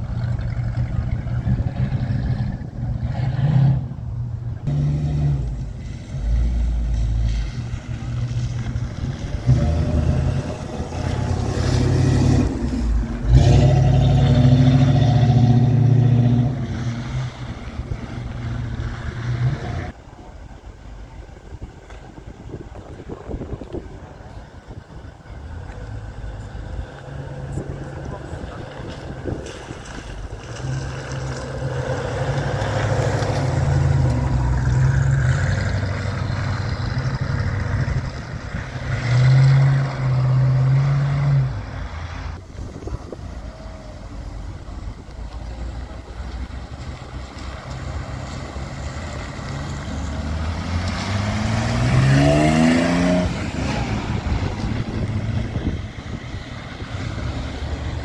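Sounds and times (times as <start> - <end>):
car engines idling: 0.0 - 3.2, 3.8 - 38.8, 41.5 - 58.0
engine revving up: 0.0 - 20.0, 47.6 - 58.0.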